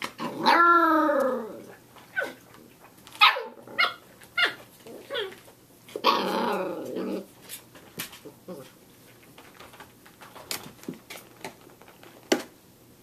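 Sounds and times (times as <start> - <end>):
puppy growling: 0.2 - 2.7, 3.3 - 7.4, 8.2 - 8.8.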